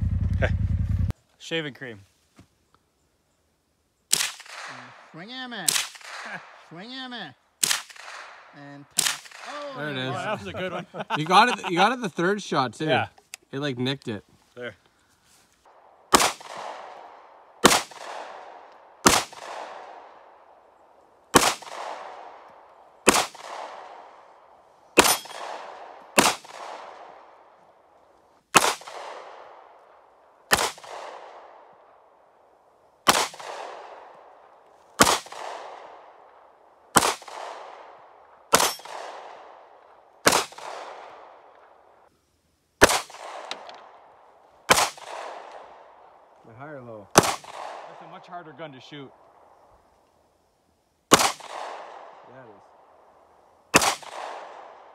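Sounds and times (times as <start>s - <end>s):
handgun shots echoing: 4.1s - 4.9s, 5.7s - 6.4s, 7.6s - 9.6s, 16.1s - 20.1s, 25.0s - 27.2s, 33.1s - 34.1s, 35.0s - 35.9s, 38.5s - 39.4s, 40.2s - 41.2s, 47.1s - 48.0s, 51.1s - 52.2s, 53.7s - 54.7s.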